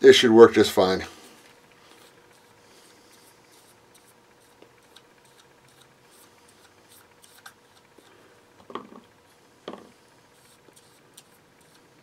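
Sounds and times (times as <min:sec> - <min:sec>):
brush scraping on wood: 0:01.8 - 0:08.2, 0:10.3 - 0:12.0.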